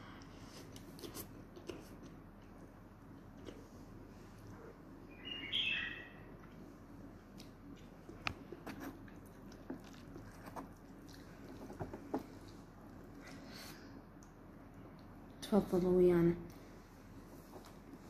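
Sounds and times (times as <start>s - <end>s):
high squeaky chirp: 5.1s - 6.3s.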